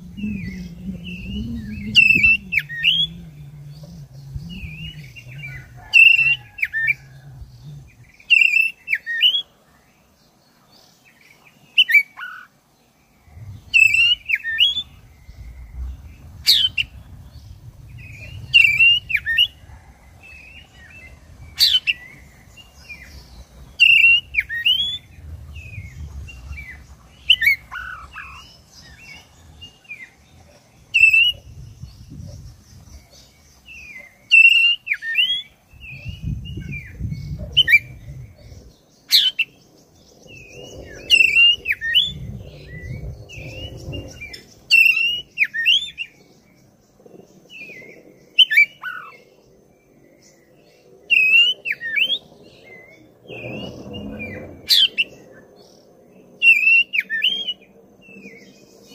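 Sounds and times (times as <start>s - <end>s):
bird whistling and chirping: 0.0s - 7.1s, 13.4s - 19.6s, 20.2s - 30.1s.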